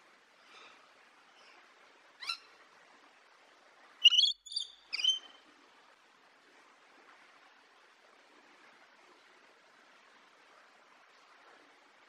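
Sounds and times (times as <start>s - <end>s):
lorikeet calling: 4.0s - 5.3s.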